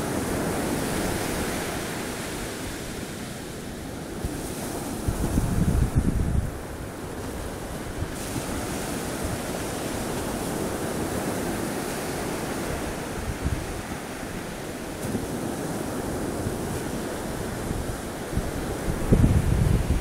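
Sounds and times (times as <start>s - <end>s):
waves breaking: 0.0s - 20.0s
wind buffeting microphone: 0.0s - 20.0s.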